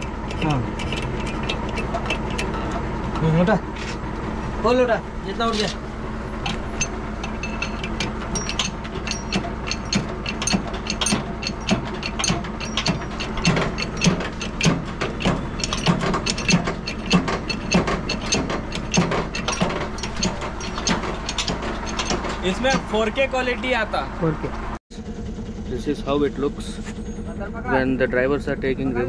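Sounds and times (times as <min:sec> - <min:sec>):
hydraulic jack clicking and clanking: 0:00.0 - 0:03.6, 0:05.4 - 0:23.2.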